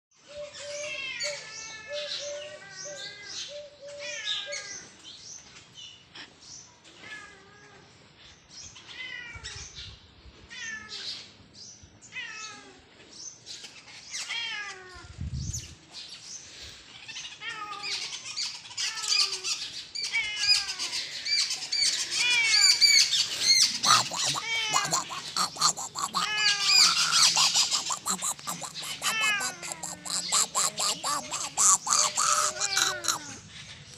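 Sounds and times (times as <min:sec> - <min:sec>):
short falling animal calls: 0:22.2 - 0:33.4.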